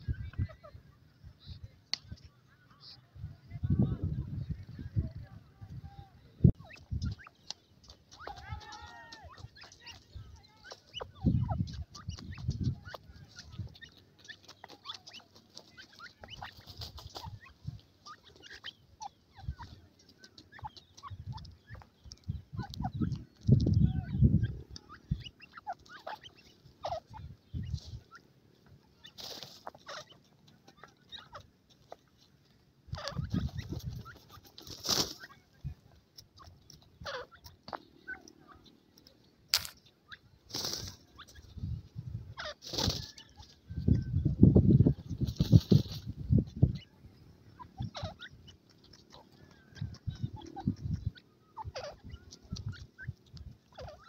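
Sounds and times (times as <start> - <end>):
young birds chirping: 0.0 - 54.0
scuffling in dry soil: 25.6 - 39.8, 40.4 - 47.0.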